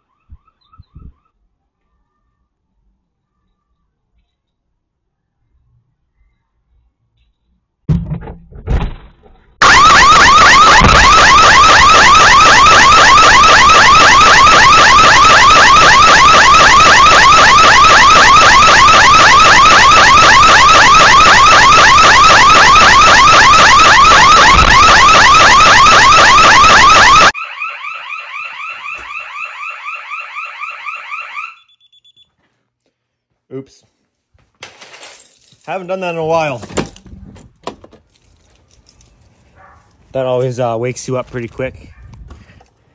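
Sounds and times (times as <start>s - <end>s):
alarm siren warbling: 9.6s - 32.2s.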